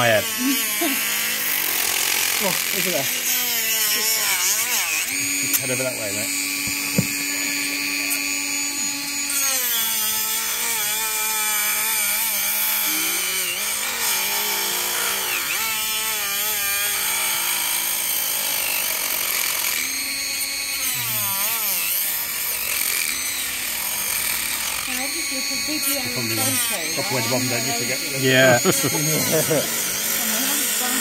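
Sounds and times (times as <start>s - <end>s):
rotary tool grinding hoof: 0.0s - 31.0s.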